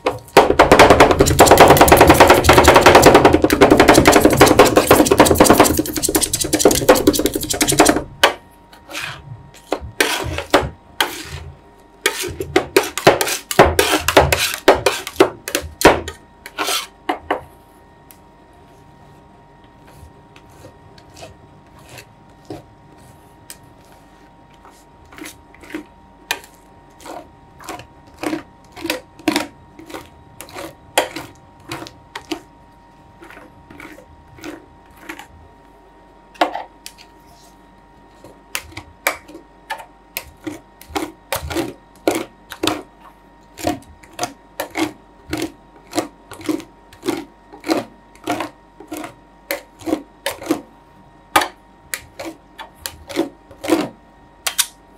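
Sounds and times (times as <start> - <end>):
faint steady hum: 0.0 - 54.9.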